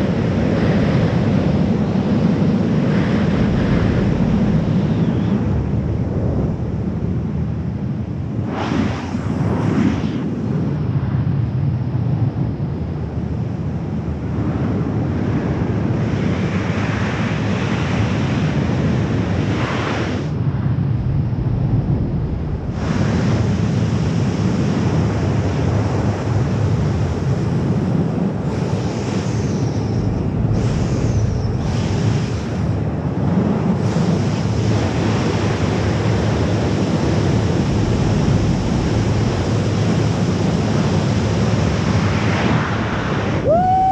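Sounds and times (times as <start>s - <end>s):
wind rushing over microphone: 0.0s - 43.9s.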